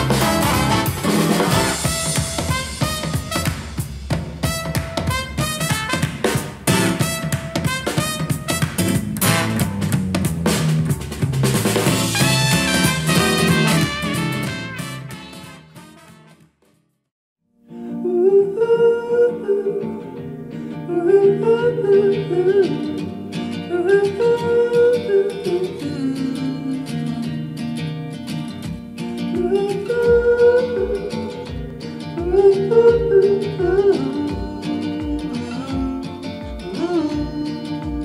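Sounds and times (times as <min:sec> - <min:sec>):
upbeat song through speakers: 0:00.0 - 0:09.8, 0:11.9 - 0:15.8
low thumping beat: 0:00.0 - 0:15.4.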